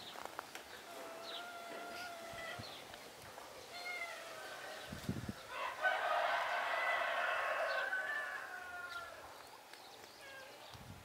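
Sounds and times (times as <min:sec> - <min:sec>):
rooster crowing: 0:05.5 - 0:09.2.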